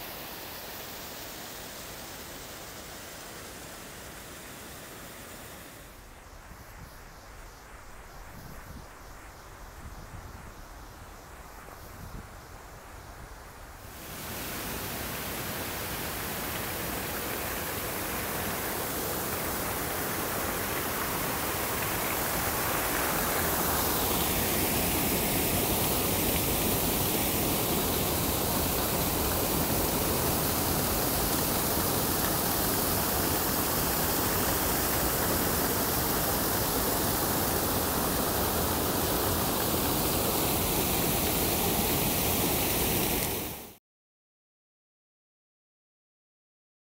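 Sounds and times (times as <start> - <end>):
waterfall rushing: 13.9 - 43.8.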